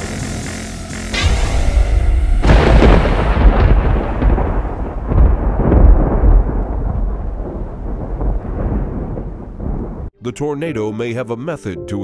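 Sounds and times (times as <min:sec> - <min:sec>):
rolling thunder rumble: 0:01.7 - 0:10.1.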